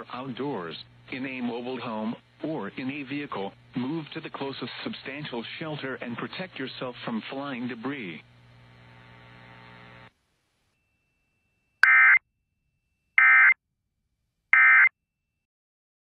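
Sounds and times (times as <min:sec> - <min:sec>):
digital data tone bursts: 0:11.8 - 0:12.2.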